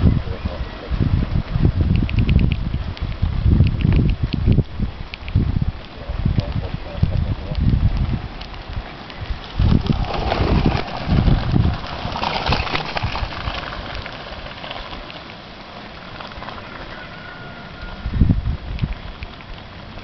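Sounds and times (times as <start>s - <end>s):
wind buffeting microphone: 0.0s - 15.2s, 16.3s - 20.0s
steady hiss: 0.0s - 20.0s
bicycle rattling over cobblestones: 7.6s - 17.6s.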